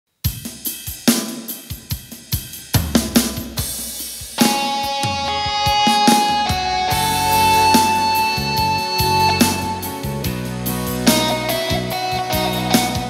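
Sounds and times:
drum pattern: 0.2s - 13.0s
sustained keyboard chords: 4.4s - 13.0s.

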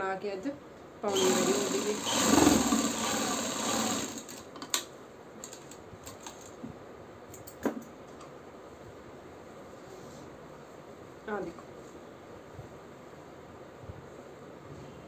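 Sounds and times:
sewing machine stitching: 1.1s - 4.4s.

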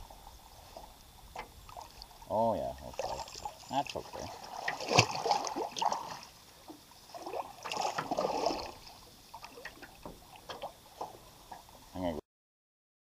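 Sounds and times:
feet splashing in shallow water: 2.8s - 6.3s, 7.1s - 10.7s.

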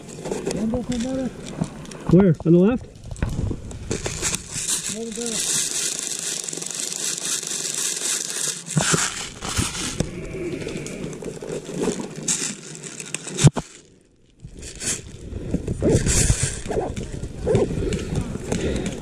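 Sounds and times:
dry leaves rustling and crunching: 3.0s - 15.2s
gear being handled: 3.9s - 10.0s, 10.6s - 13.8s.

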